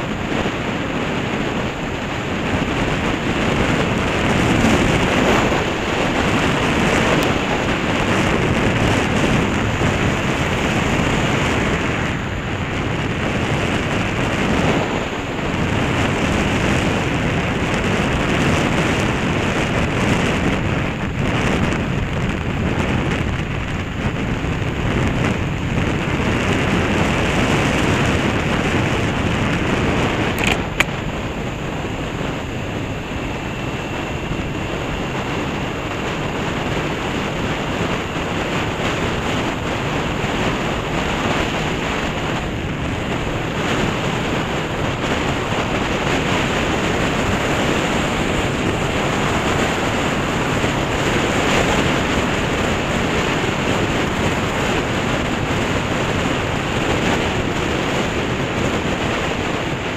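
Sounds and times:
motorcycle engine running: 0.0s - 59.9s
road noise: 0.0s - 59.9s
wind buffeting microphone: 0.0s - 59.9s
sharp click: 30.4s - 30.9s.

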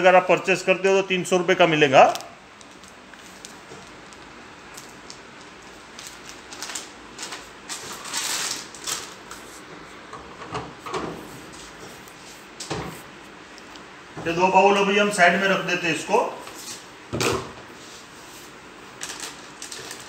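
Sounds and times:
foil packet rustling and crinkling: 2.0s - 9.7s, 18.9s - 20.0s.

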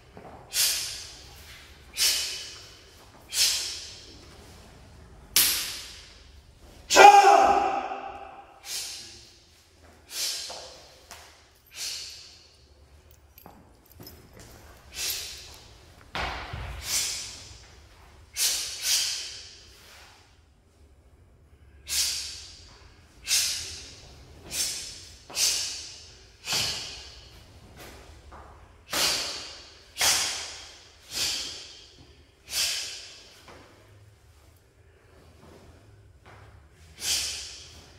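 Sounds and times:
sharp forceful exhalations: 0.5s - 4.1s, 7.8s - 10.8s, 11.6s - 12.6s, 14.8s - 15.6s, 16.8s - 17.6s, 21.7s - 27.4s, 28.8s - 33.5s, 36.8s - 37.9s.

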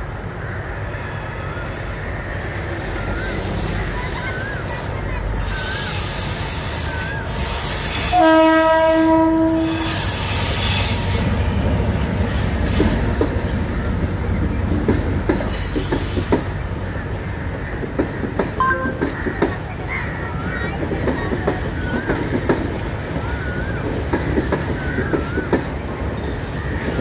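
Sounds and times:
train low rumble: 0.0s - 27.0s
train wheel squeal: 0.8s - 17.0s, 18.6s - 27.0s
train horn blast: 7.7s - 10.2s.

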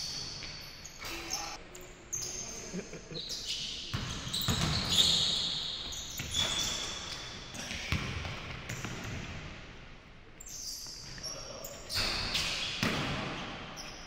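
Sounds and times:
sneaker squeaks on wooden floor: 3.2s - 7.6s, 10.4s - 13.1s.

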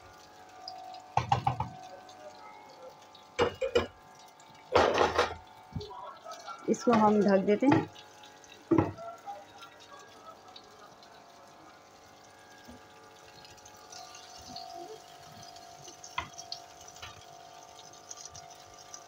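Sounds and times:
tomatoes sizzling in oil: 0.0s - 19.0s
spatula knocking against pan: 1.2s - 1.8s.

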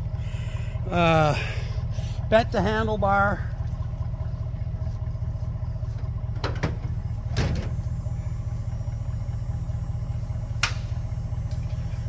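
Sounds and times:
pickup truck idling: 0.0s - 12.0s
tailgate clunks: 6.3s - 7.8s.

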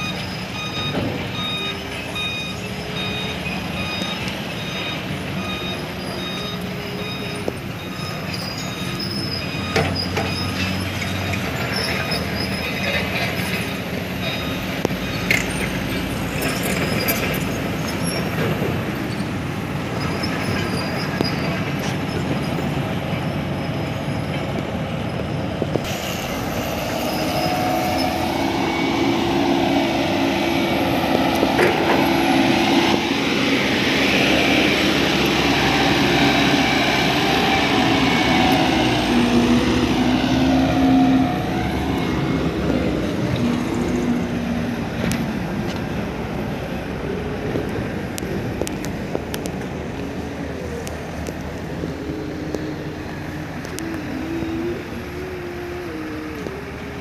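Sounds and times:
diesel truck engine running: 0.0s - 57.0s
whining tone: 25.9s - 33.0s, 50.6s - 57.0s.

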